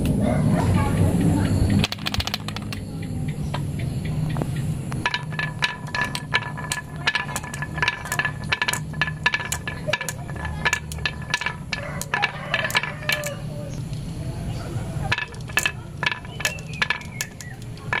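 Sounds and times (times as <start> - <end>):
marbles clacking together: 1.7 - 2.9, 4.9 - 14.1, 15.0 - 18.0
marbles rolling on wooden track: 1.7 - 2.9, 4.9 - 14.1, 14.9 - 18.0.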